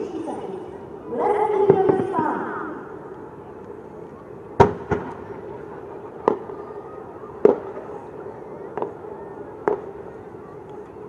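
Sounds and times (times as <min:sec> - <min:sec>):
firework bangs: 0:04.6 - 0:06.6, 0:07.4 - 0:08.0, 0:09.6 - 0:10.0.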